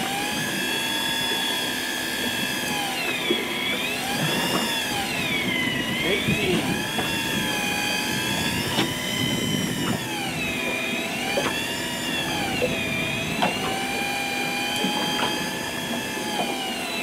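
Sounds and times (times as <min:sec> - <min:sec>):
fishing reel motor whining: 0:00.0 - 0:17.0.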